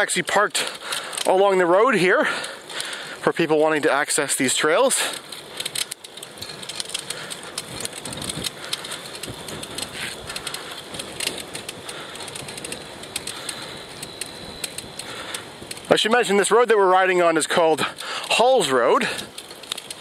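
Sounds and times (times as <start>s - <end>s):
wind and tyre hiss: 0.0s - 20.0s
microphone crackles and ticks: 5.0s - 16.6s.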